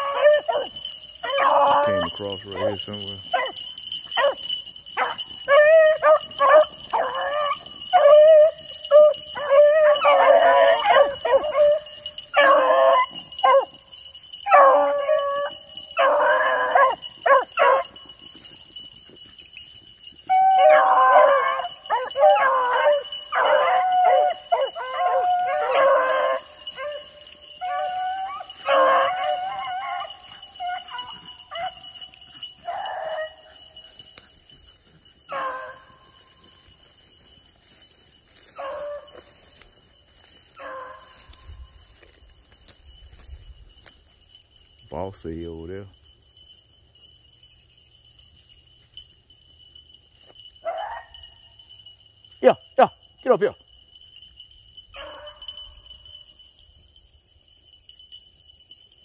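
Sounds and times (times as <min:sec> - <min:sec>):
beagles baying: 0:00.0 - 0:45.7, 0:48.1 - 0:56.3.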